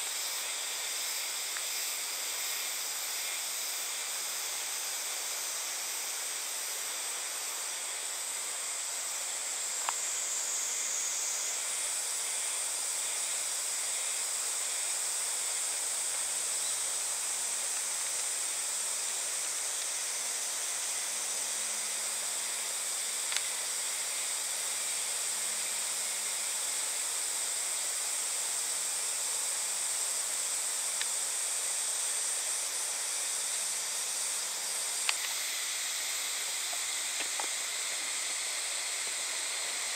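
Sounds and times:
high-pitched insect chorus: 0.0s - 39.9s
faint ticks: 1.5s - 1.8s, 23.2s - 23.6s, 31.0s - 31.2s, 35.0s - 35.4s.

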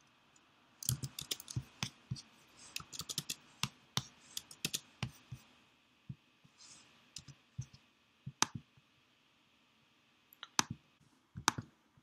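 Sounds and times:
keyboard and mouse clicks: 0.8s - 4.9s, 10.3s - 10.8s, 11.4s - 11.7s.

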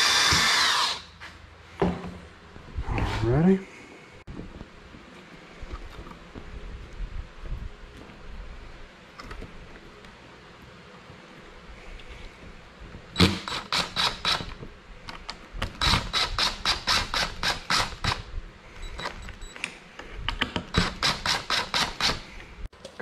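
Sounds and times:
impact driver hammering screws: 0.0s - 1.0s.

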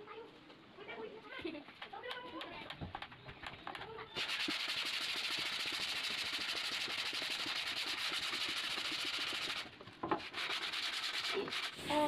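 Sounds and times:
sanding plywood: 4.2s - 12.0s.

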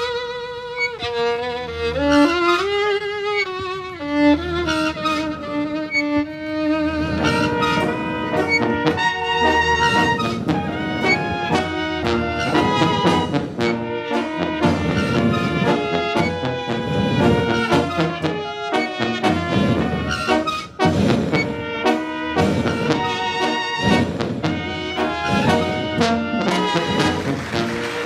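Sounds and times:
brass band music: 0.8s - 28.0s.

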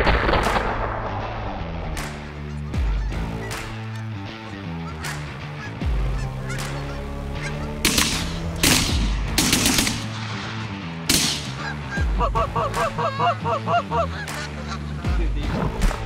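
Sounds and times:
background music: 0.0s - 16.0s
geese honking: 4.7s - 8.6s, 11.4s - 14.8s
echoing shotgun blasts: 7.8s - 11.6s.

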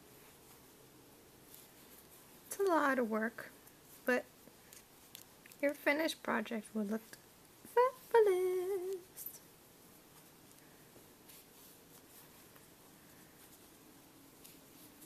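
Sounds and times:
crochet hook ticks and rustles: 1.5s - 6.1s
woman singing a word: 7.7s - 9.4s.

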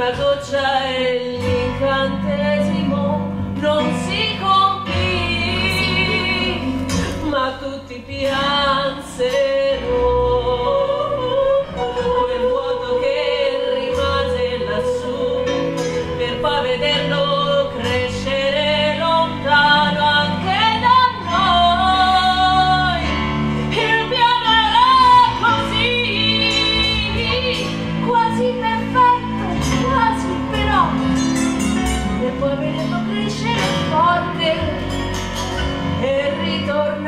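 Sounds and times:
women singing: 0.0s - 31.2s, 32.1s - 35.0s, 35.8s - 37.0s
instrumental accompaniment: 0.0s - 37.0s.

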